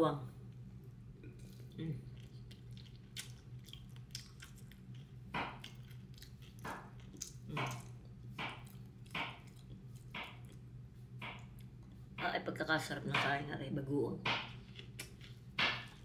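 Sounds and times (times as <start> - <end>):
low steady hum: 0.0 - 16.0
person chewing and lip-smacking: 1.2 - 12.1, 14.4 - 16.0.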